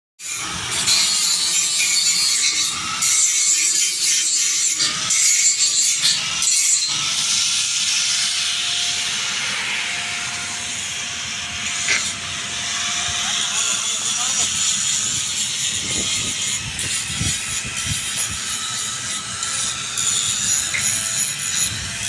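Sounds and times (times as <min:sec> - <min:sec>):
arc welding crackling hiss: 0:00.2 - 0:22.0.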